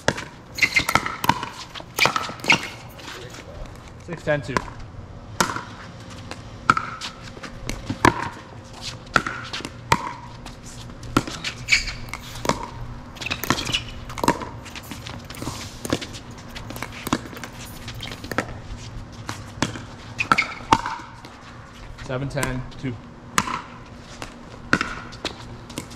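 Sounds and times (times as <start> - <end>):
paddles hitting plastic ball: 0.0 - 3.0, 5.4 - 5.7, 6.6 - 8.4, 9.1 - 10.3, 11.1 - 18.6, 19.2 - 21.3.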